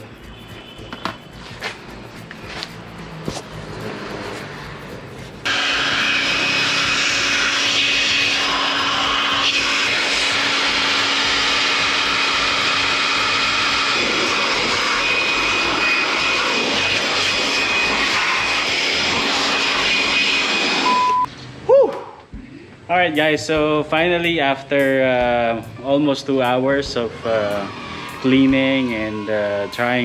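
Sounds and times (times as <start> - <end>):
electric blower running: 2.2 - 21.2, 27.0 - 30.0.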